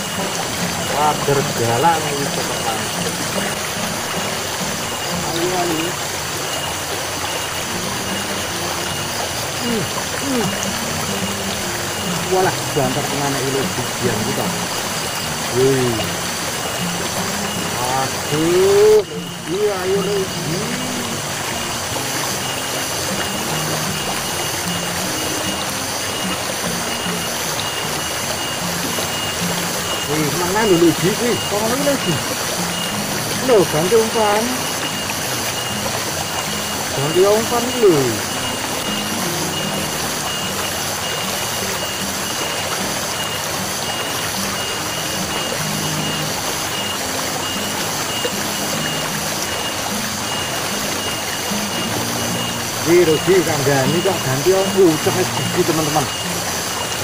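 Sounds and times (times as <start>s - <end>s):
high-pitched pulsing beep: 0.0s - 57.0s
low-pitched background music melody: 0.0s - 57.0s
small stream rushing: 0.0s - 57.0s.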